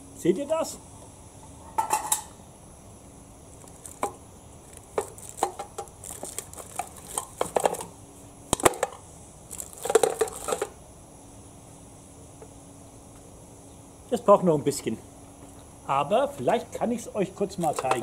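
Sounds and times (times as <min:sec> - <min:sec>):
metal mess tin clattering: 0:17.6 - 0:18.0.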